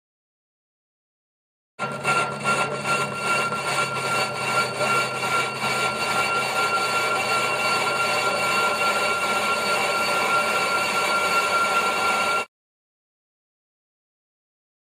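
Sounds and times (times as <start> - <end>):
metal lathe cutting whine: 1.8 - 12.5.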